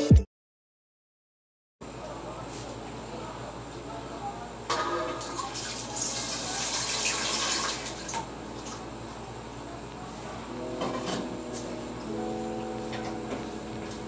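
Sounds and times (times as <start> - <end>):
water pouring and splashing: 5.3 - 8.2.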